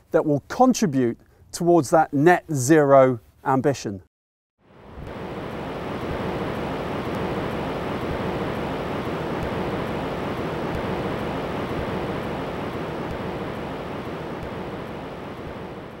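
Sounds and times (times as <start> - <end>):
ocean waves surging: 4.7 - 16.0.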